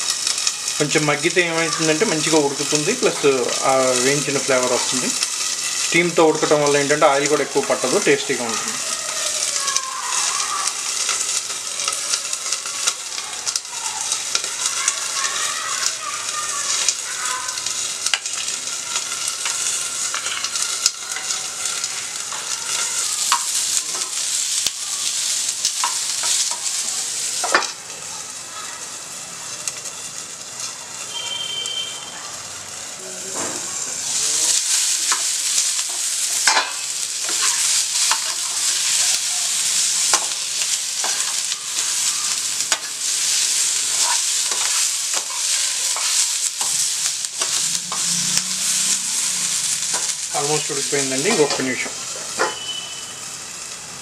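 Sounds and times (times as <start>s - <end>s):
onions sizzling in oil: 0.0s - 54.0s
metal spoon scraping pan: 43.9s - 50.2s.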